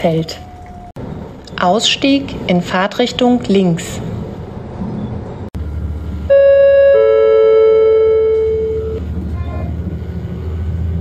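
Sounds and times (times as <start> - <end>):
train running rumble: 0.0 - 6.4, 7.9 - 11.0
two-note announcement gong: 6.3 - 9.1.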